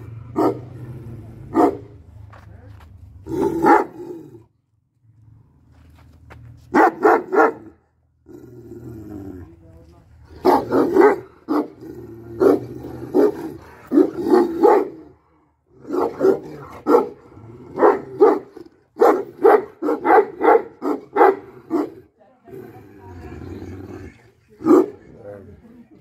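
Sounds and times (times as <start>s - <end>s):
dog barking loudly: 0.3s - 0.8s, 1.5s - 1.9s, 3.3s - 4.0s, 6.7s - 7.8s, 10.4s - 11.8s, 12.4s - 15.1s, 15.8s - 22.0s.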